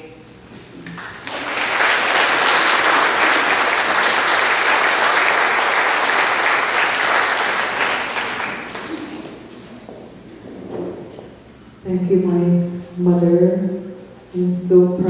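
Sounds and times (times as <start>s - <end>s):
audience applauding: 0.8s - 9.7s.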